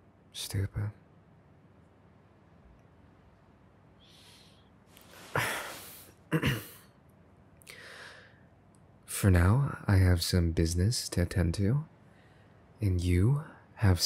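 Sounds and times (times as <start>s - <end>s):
man breathing and sighing: 4.0s - 6.2s, 7.6s - 8.4s.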